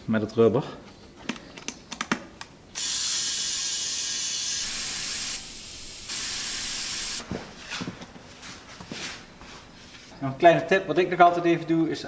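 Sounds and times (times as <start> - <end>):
compressed air hissing into tyre: 2.8 - 7.2.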